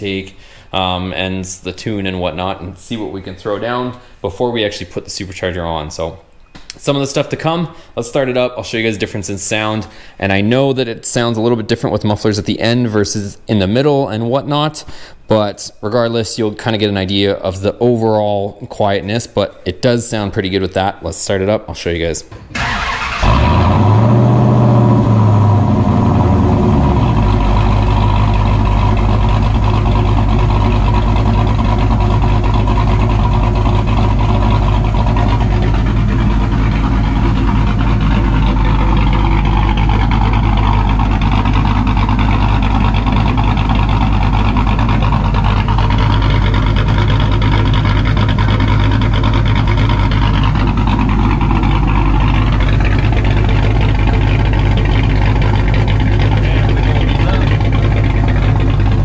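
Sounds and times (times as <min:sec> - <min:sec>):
car engine idling: 0:22.3 - 0:59.0.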